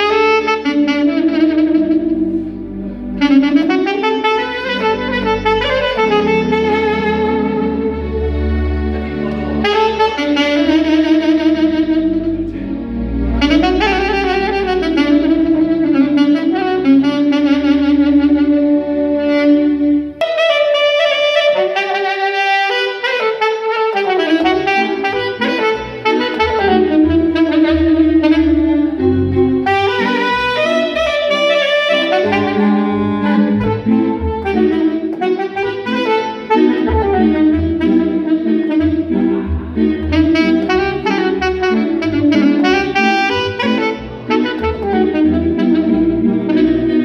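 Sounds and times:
saxophone melody: 0.0 - 47.0
pulsing bass line: 1.2 - 19.0, 26.4 - 35.8, 36.8 - 43.6.

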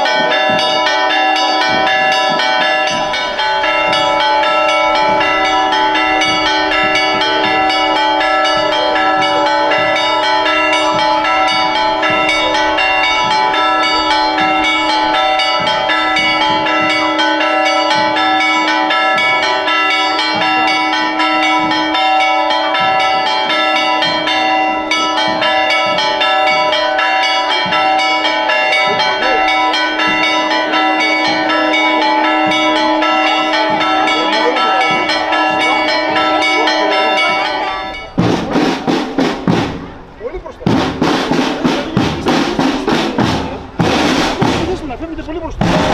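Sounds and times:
church bells pealing: 0.0 - 45.9.

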